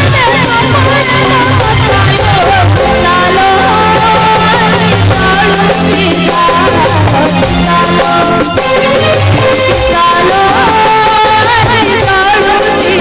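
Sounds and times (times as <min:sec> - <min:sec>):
boy singing into a microphone: 0:00.0 - 0:13.0
drums keeping a steady beat: 0:00.0 - 0:13.0.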